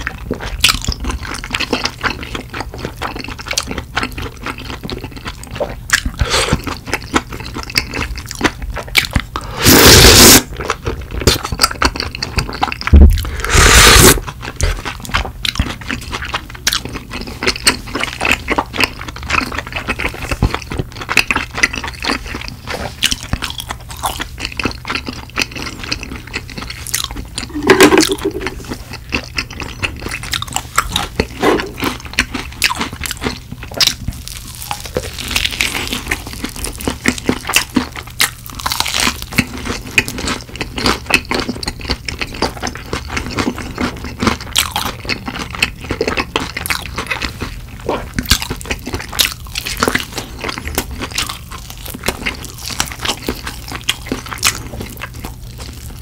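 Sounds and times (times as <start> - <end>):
close chewing: 0.0 - 9.5, 10.1 - 56.0
loud slurps: 9.5 - 10.5, 13.1 - 14.8
wet mouth clicks: 27.4 - 28.6.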